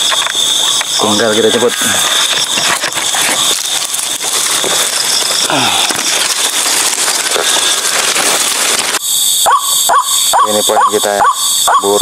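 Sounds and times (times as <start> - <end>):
dry fronds rustling and crackling: 0.0 - 9.0
night insects droning: 0.0 - 12.0.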